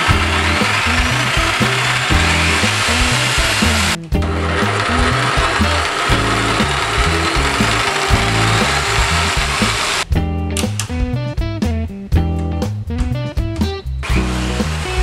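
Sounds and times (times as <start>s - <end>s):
jigsaw cutting wood: 0.0s - 10.0s, 14.0s - 15.0s
background music with bass: 0.0s - 15.0s.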